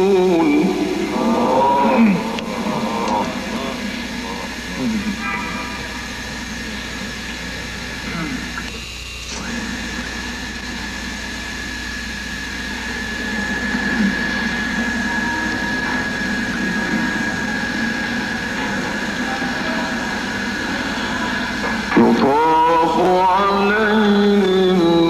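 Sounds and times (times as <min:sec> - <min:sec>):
person chanting melodically: 0:00.0 - 0:06.0, 0:20.7 - 0:25.0
rushing hum drone: 0:00.0 - 0:25.0.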